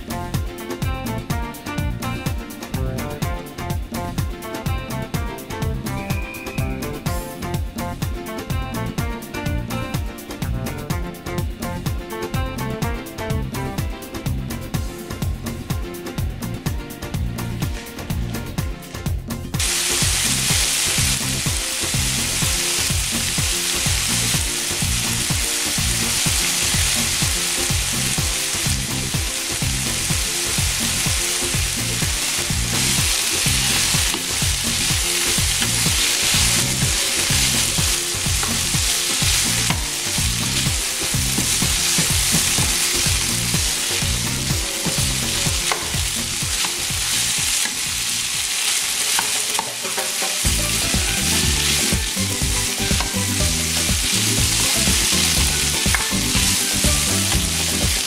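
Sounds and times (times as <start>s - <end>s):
chicken sizzling in a pan: 19.6s - 58.0s.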